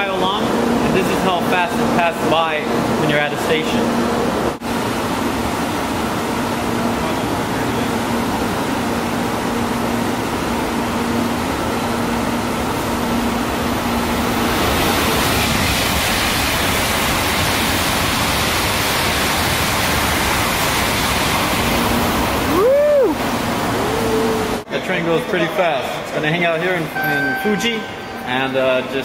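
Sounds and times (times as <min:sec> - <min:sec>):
train passing at full speed: 0:03.8 - 0:24.7
tone rising and falling in pitch: 0:27.0 - 0:28.6.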